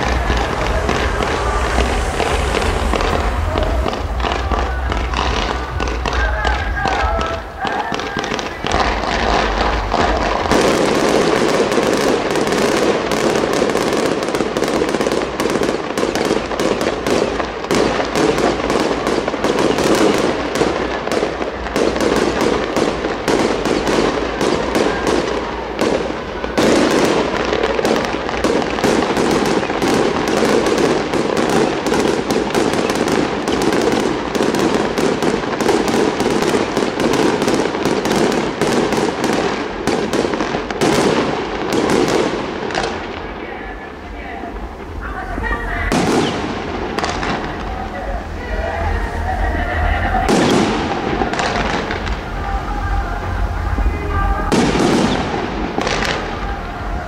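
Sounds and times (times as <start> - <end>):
fireworks bangs and crackling: 0.0 - 57.0.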